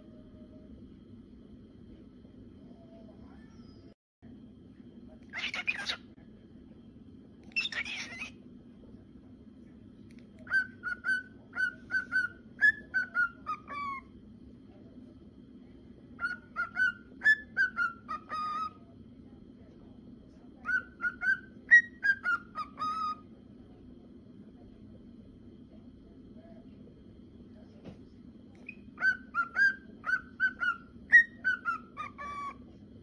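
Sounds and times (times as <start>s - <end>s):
cockatiel whistling a song: 5.3s - 6.0s, 7.5s - 8.4s, 10.4s - 14.1s, 16.2s - 18.8s, 20.6s - 23.3s, 28.6s - 32.6s.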